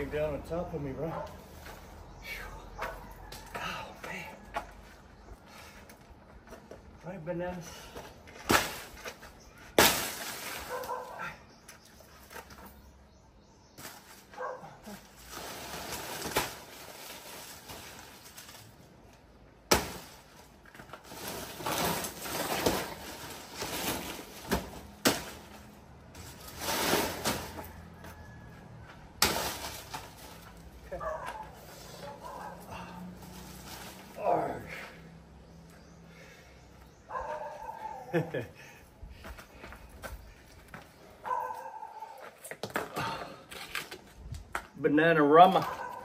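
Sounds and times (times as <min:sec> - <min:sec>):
leaves rustling and crunching: 0:14.9 - 0:18.8, 0:19.7 - 0:25.5, 0:33.0 - 0:34.5.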